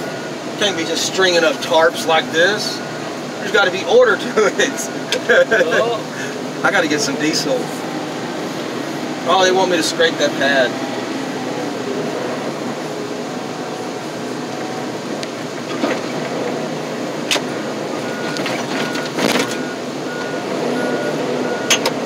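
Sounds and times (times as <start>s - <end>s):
reversing alarm beeping: 0.0s - 5.2s, 18.0s - 21.9s
diesel tractor running: 0.0s - 22.0s.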